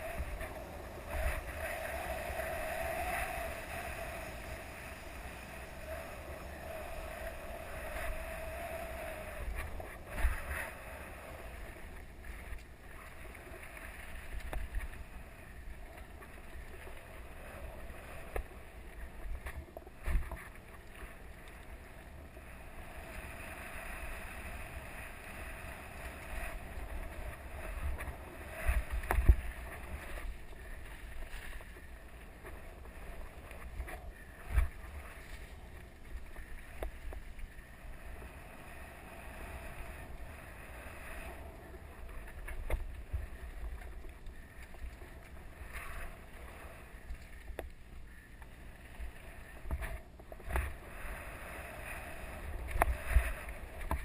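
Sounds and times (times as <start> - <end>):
wind rushing over microphone: 0.0 - 11.9.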